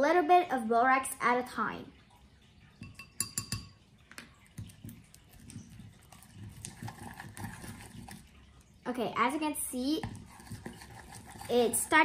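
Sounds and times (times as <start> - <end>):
sticky slime stirring: 2.6 - 12.0
taps on ceramic bowl: 2.8 - 3.8.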